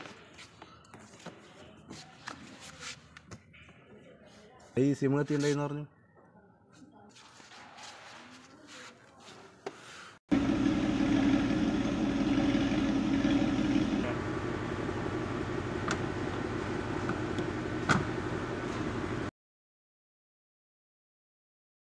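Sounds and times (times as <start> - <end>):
car engine idling: 10.3 - 19.1
louder hum: 10.3 - 19.3.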